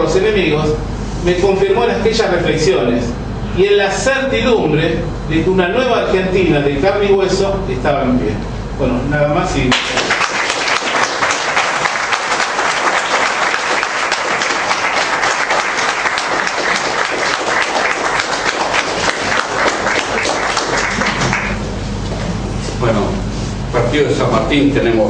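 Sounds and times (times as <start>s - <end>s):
audience applauding: 9.7s - 21.6s.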